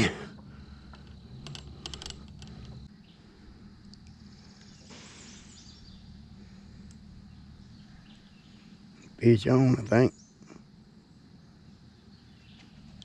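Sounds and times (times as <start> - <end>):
faint outdoor background: 0.0 - 13.0
gear clicking in plastic kayak: 0.9 - 2.8.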